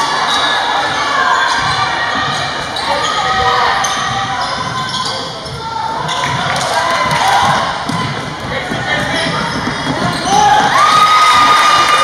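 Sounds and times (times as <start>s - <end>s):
basketball bouncing: 3.2s - 11.1s
people shouting: 10.2s - 12.0s.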